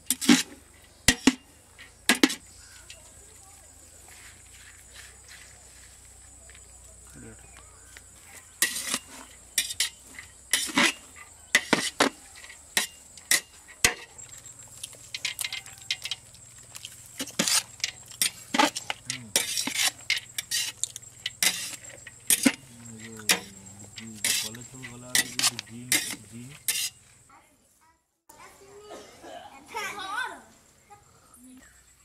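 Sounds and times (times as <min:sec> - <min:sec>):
metal spatula scraping a pot: 0:00.0 - 0:01.4, 0:08.3 - 0:16.3, 0:17.0 - 0:27.0.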